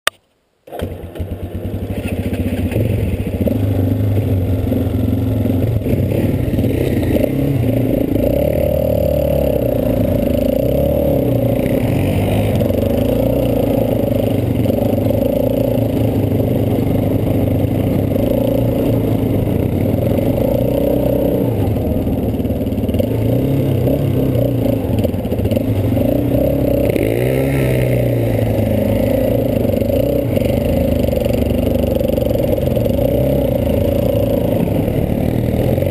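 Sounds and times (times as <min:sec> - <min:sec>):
quad bike engine revving: 0:00.7 - 0:35.9.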